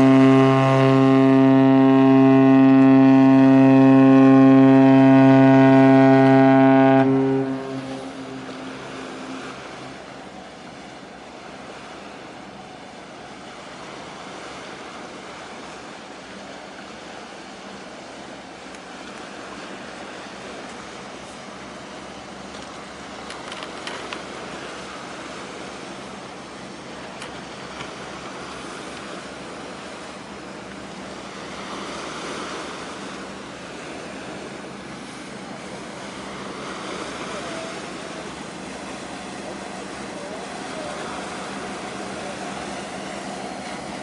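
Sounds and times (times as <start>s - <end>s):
ship horn long deep blast: 0.0s - 10.6s, 27.5s - 44.0s
sea: 0.0s - 44.0s
wind: 0.0s - 44.0s.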